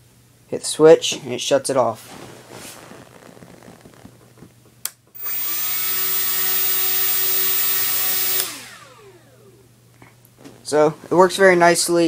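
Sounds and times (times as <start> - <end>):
electric motor whine: 5.2 - 9.6.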